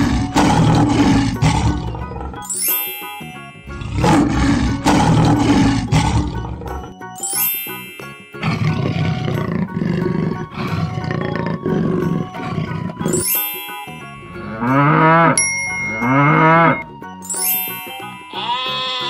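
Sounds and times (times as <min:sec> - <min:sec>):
big cat growling: 0:00.0 - 0:02.4, 0:03.7 - 0:06.9, 0:08.4 - 0:13.2
light background music: 0:00.0 - 0:19.0
rising bell chime: 0:02.4 - 0:04.6, 0:07.1 - 0:09.2, 0:13.1 - 0:18.6
cow mooing: 0:08.4 - 0:13.1, 0:14.5 - 0:16.8.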